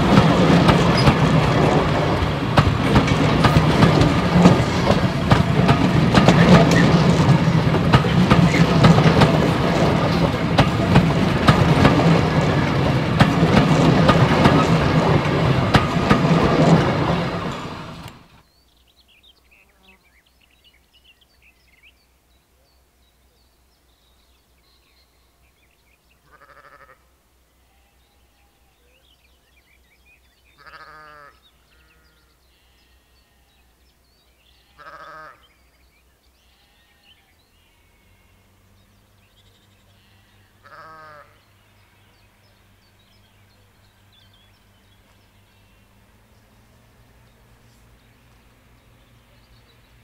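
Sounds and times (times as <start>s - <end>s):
distant diesel locomotive drone: 0.0s - 50.0s
faint birdsong: 0.0s - 50.0s
sheep bleating: 26.2s - 27.0s, 30.6s - 33.6s, 34.5s - 35.5s, 39.9s - 42.2s.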